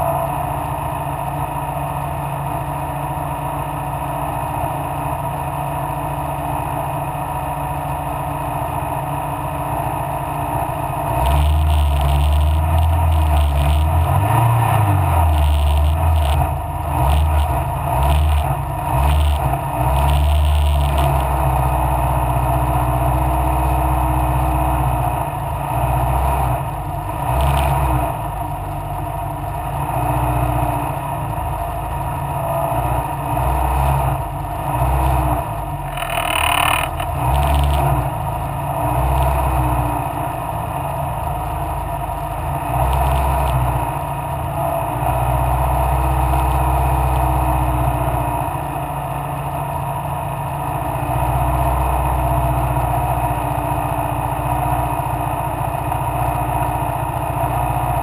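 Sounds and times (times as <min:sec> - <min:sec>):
racing car engine revving: 0:11.0 - 0:40.2.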